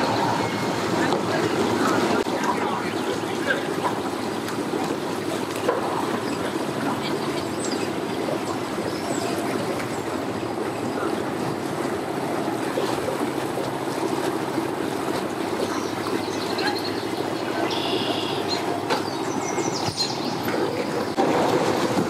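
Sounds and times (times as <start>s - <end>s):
outboard motor running: 0.0s - 22.0s
propeller wash churning water: 0.0s - 22.0s.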